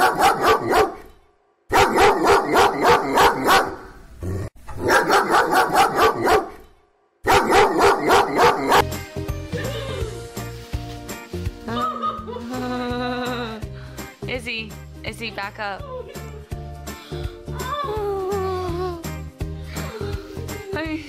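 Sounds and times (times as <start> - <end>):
dog barking: 0.0 - 1.1, 1.7 - 3.9, 4.8 - 6.6, 7.2 - 8.9.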